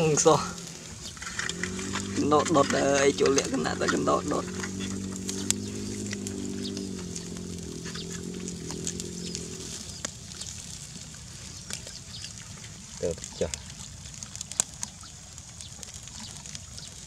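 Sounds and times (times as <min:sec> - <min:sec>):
water buffalo lowing: 0:00.0 - 0:13.0
fire embers crackling: 0:00.0 - 0:17.0.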